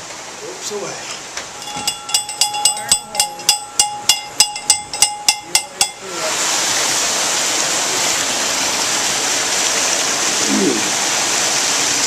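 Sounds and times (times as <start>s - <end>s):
winch ratchet clicking: 1.6s - 6.0s
water pouring down a sluice: 5.8s - 12.0s.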